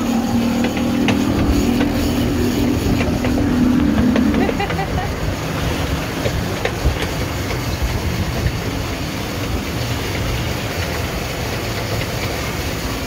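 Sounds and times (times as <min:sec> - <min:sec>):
outboard motor drone: 0:00.0 - 0:05.4
rushing water: 0:00.0 - 0:13.0
wind noise: 0:00.0 - 0:13.0.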